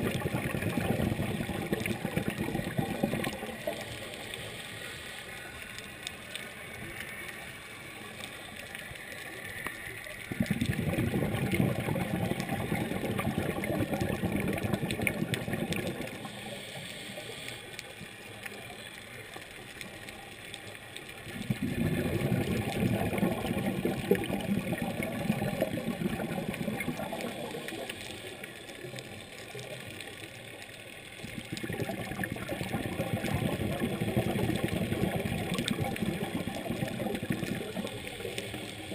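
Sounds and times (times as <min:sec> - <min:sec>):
exhaled regulator bubbles underwater: 0:00.0 - 0:04.3, 0:10.2 - 0:16.6, 0:21.2 - 0:28.1, 0:31.2 - 0:38.9.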